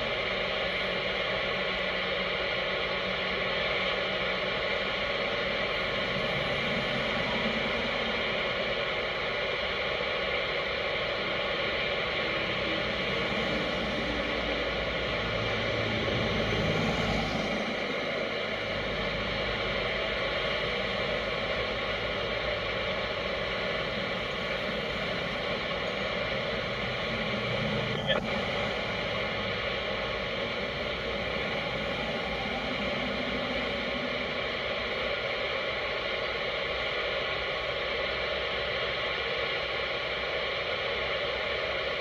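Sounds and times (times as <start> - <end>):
steady hiss: 0.0 - 42.0.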